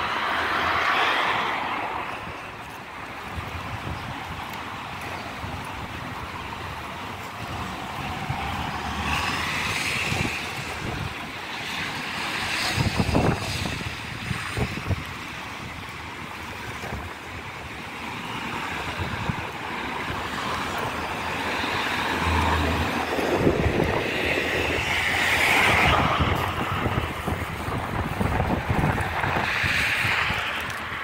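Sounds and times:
street traffic passing: 0.0s - 31.0s
wind rumble on microphone: 0.0s - 31.0s
vehicle passing: 7.2s - 15.0s, 18.1s - 31.0s.

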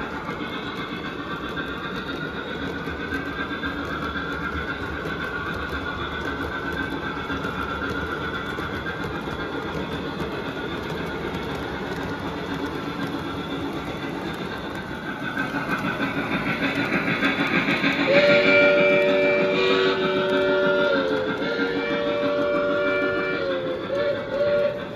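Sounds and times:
model train rumble and wheel clatter: 0.0s - 24.9s
steam whistle chord: 18.1s - 24.8s.

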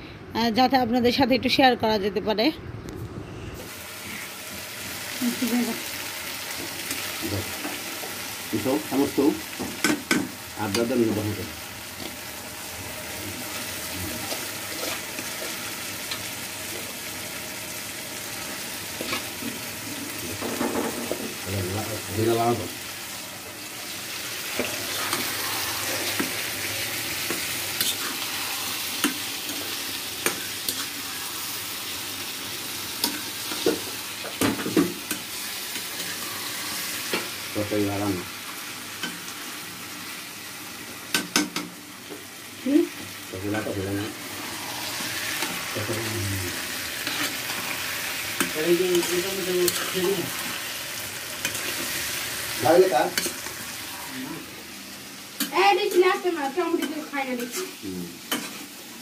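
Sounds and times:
chicken sizzling in oil: 3.7s - 59.0s
metal spatula scraping a pan: 27.2s - 29.2s, 47.0s - 47.7s.

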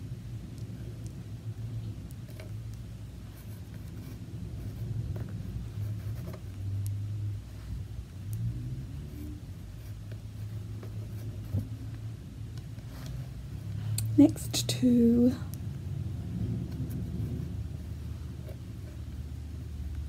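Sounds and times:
low rumble: 6.6s - 20.0s.

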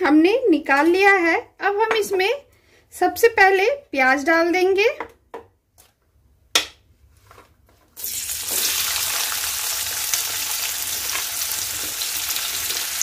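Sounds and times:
onions sizzling in hot oil: 8.0s - 13.0s.

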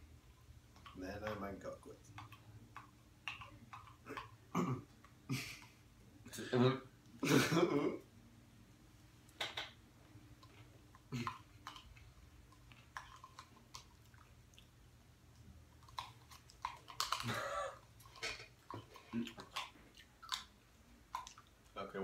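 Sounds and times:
chewing and mouth noises: 1.9s - 5.8s, 10.2s - 22.0s.

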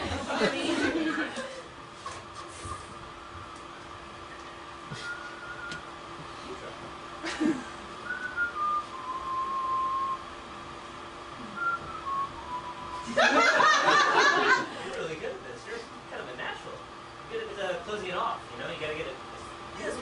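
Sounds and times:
person whistling: 4.9s - 5.8s, 8.0s - 10.3s, 11.4s - 13.1s
burst of laughter: 13.1s - 14.8s.

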